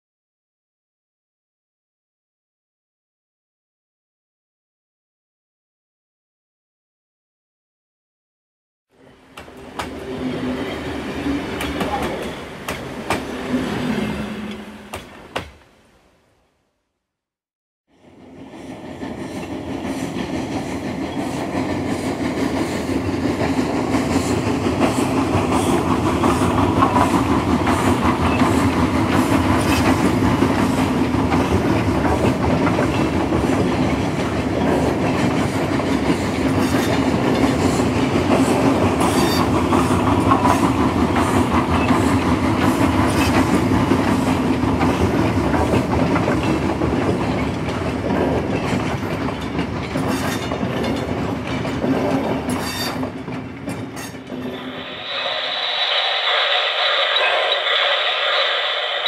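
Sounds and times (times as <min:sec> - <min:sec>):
train rumbling: 0:09.0 - 0:16.1, 0:17.9 - 0:59.0
wheels clicking over rail joints: 0:44.6 - 0:54.5.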